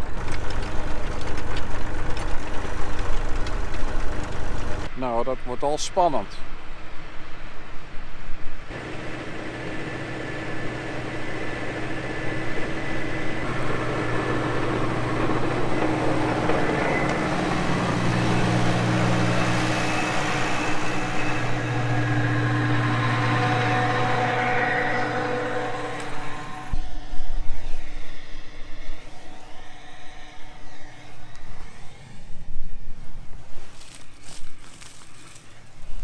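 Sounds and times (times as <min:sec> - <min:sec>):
tractor engine passing: 0:08.7 - 0:27.1.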